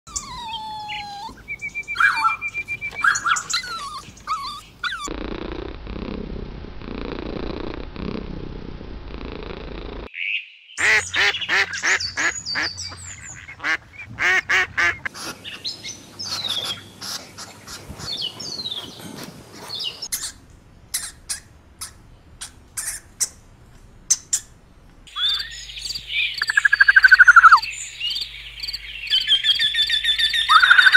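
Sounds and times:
birds chirping and calling: 0.1 - 5.1, 10.1 - 23.4, 24.1 - 30.9
steady noise: 5.1 - 10.1.

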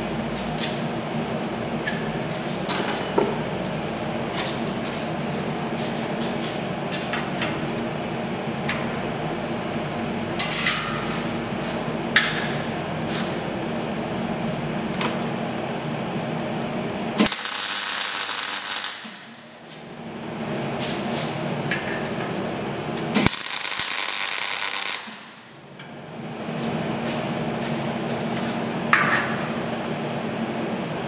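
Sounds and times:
steady hum: 0.0 - 31.0
welding arc crackling hiss: 17.2 - 19.9, 23.1 - 25.5.

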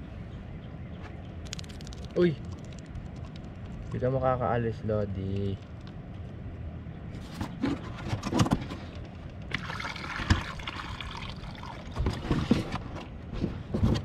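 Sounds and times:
water splashing and sloshing: 9.4 - 13.2.

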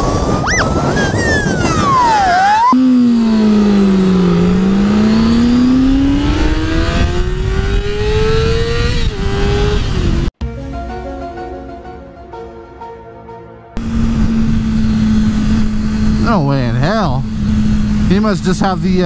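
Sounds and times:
wind rush: 0.0 - 2.8, 13.8 - 18.1
motorcycle engine revving: 1.6 - 10.4, 13.8 - 19.0.

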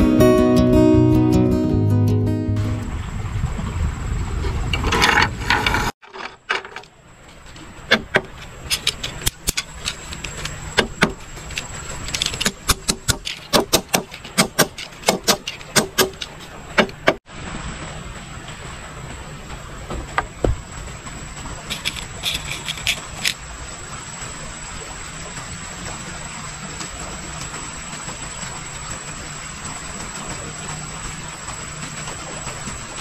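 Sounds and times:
small objects clicking and tapping: 7.5 - 17.0, 21.7 - 23.4.

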